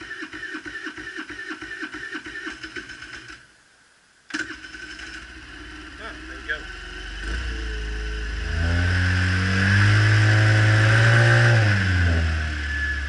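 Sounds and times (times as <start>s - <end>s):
scooter engine idling and revving: 4.6s - 13.0s.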